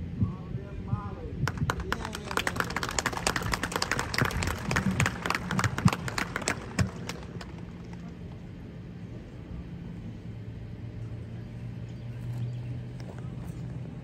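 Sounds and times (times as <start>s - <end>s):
steady low hum: 0.0s - 14.0s
crowd applauding: 1.5s - 8.4s.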